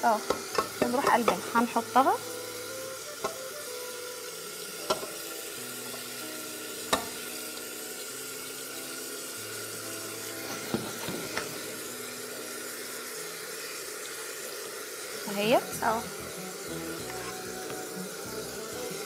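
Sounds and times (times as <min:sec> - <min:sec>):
sauce sizzling in a pot: 0:00.0 - 0:19.0
utensils knocking against a pot: 0:00.2 - 0:01.6, 0:04.8 - 0:05.2, 0:06.9 - 0:07.2.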